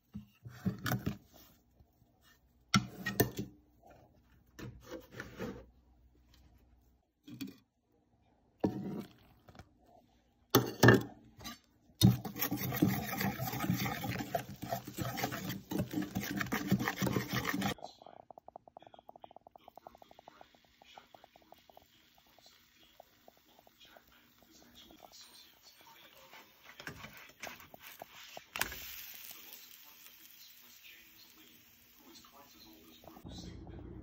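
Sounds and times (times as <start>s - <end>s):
dry mix scraped and poured: 12.0s - 17.8s, 19.6s - 29.8s
whisk stirring in steel bowl: 12.0s - 17.8s, 18.5s - 28.6s.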